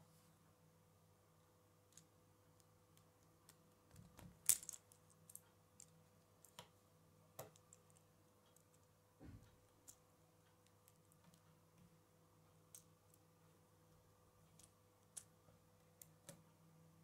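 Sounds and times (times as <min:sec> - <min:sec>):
plastic pieces clicking together: 0:03.9 - 0:05.9.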